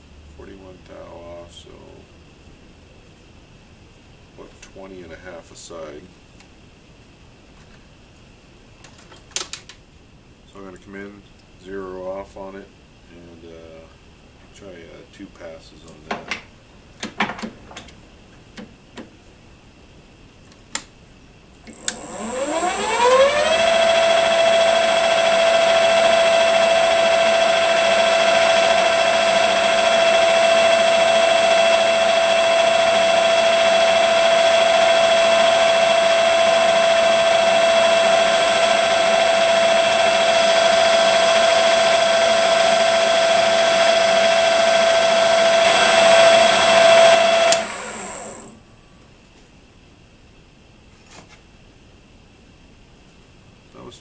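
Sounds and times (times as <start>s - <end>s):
lathe motor whine: 21.6s - 49.0s
turning tool cutting steel: 21.7s - 48.7s.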